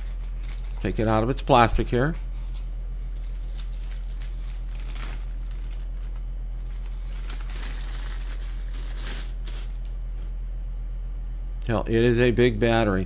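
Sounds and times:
plastic bag crinkling: 0:00.0 - 0:01.1, 0:03.0 - 0:09.9
steady low hum: 0:00.0 - 0:13.0.

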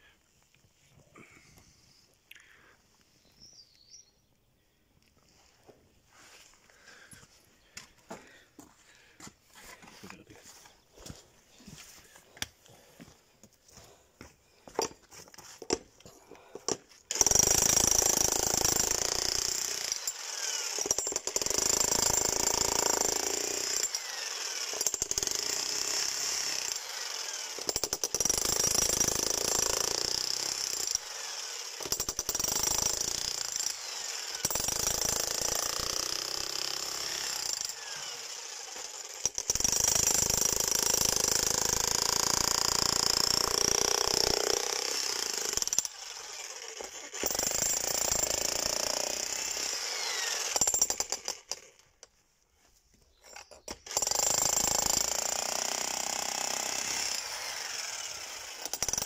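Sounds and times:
demolition hammer chiselling concrete: 0:17.1 - 0:51.6, 0:53.9 - 0:59.0.

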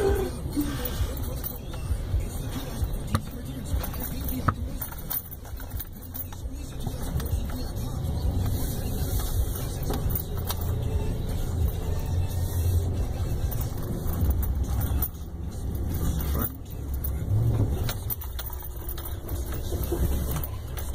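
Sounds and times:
engine and tyre rumble: 0:00.0 - 0:20.9
clicks and rattles: 0:13.4 - 0:20.9.

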